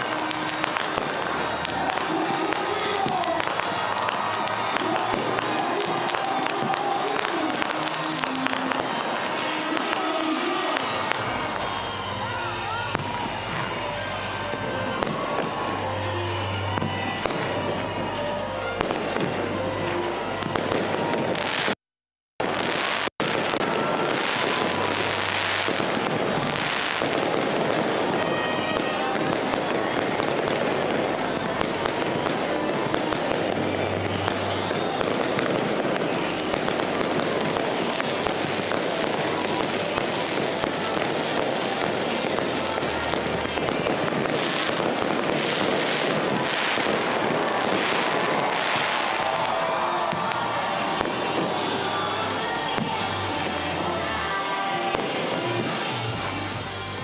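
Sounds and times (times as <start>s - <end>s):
fireworks crackling and popping: 0.0s - 15.6s, 20.4s - 57.0s
fireworks shells bursting: 26.8s - 29.2s.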